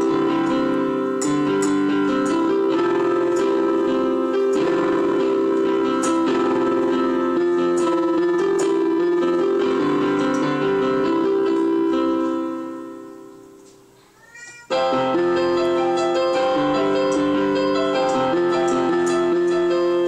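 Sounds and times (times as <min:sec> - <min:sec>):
electronic keyboard piano chords: 0:00.0 - 0:14.0, 0:14.7 - 0:20.0
cat meowing: 0:14.1 - 0:14.8.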